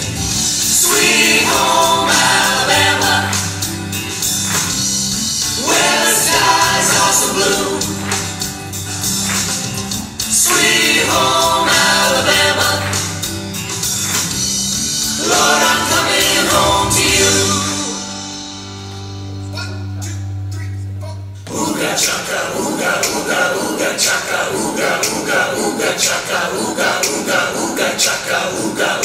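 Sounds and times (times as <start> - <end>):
mixed group singing pop in harmony: 0.0 - 18.4, 21.5 - 29.0
instrumental backing with bass line: 0.0 - 22.2.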